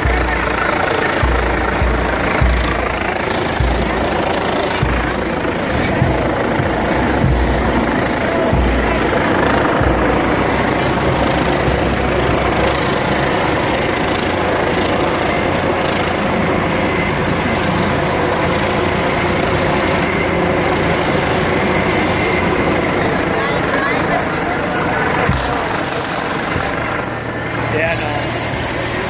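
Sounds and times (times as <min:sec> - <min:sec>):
heavy vehicle engines: 0:00.0 - 0:29.0
low thumps: 0:01.2 - 0:13.4.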